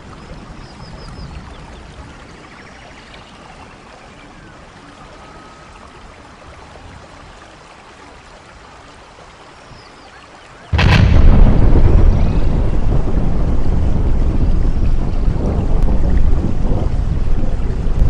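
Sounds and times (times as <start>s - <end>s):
loud explosion with deep rumble: 10.7s - 18.0s
soft steady rushing noise: 10.7s - 18.0s.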